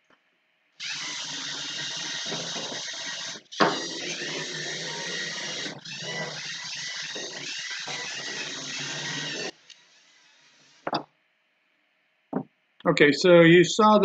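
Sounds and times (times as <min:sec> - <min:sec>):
robot motors whirring: 0:00.8 - 0:10.9.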